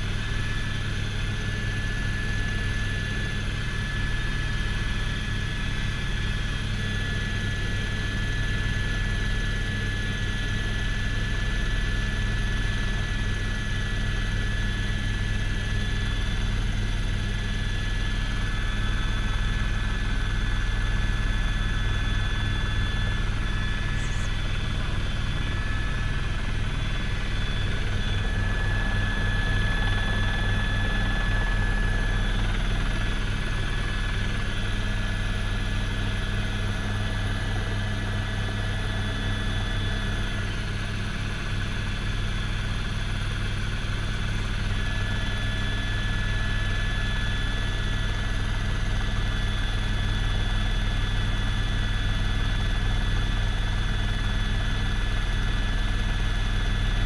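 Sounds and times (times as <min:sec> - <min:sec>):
helicopter engine whine: 0:00.0 - 0:57.0
helicopter rotor thrum: 0:22.0 - 0:41.0.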